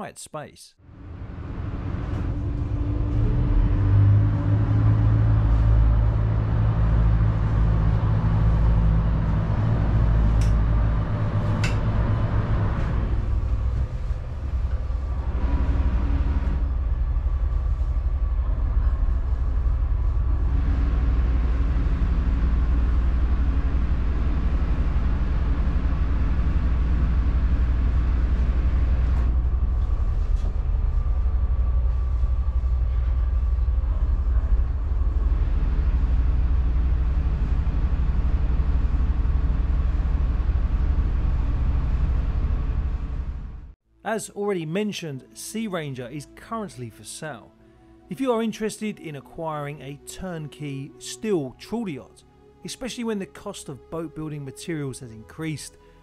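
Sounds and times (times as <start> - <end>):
boat engine rumble: 0.8 - 43.8
higher hum: 0.8 - 43.8.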